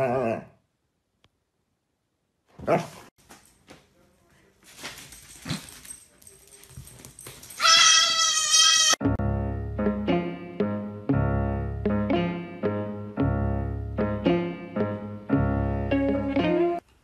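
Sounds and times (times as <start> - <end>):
goat bleating: 7.6 - 9.0.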